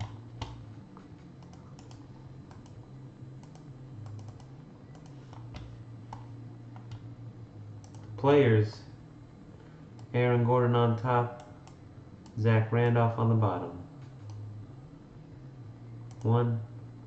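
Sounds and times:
low steady hum: 0:00.0 - 0:17.0
keyboard and mouse clicks: 0:01.4 - 0:02.8, 0:03.4 - 0:07.0, 0:07.8 - 0:08.1.

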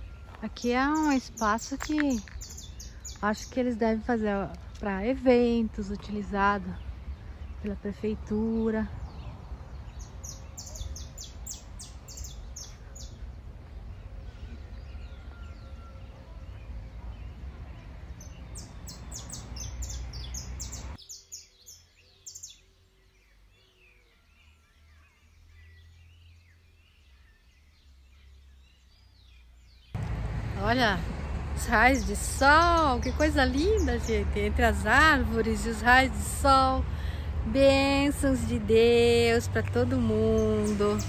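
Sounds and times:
low rumble: 0:30.0 - 0:39.8.

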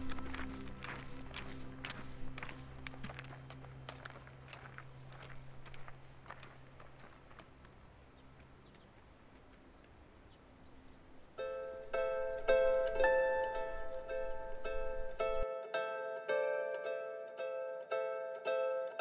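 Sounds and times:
music: 0:00.0 - 0:04.7, 0:11.4 - 0:19.0
low steady hum: 0:00.0 - 0:15.5.

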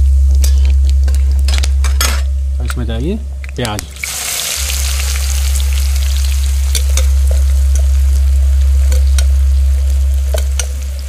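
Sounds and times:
steady low rumble: 0:00.0 - 0:11.0
onions sizzling in oil: 0:03.9 - 0:11.0.

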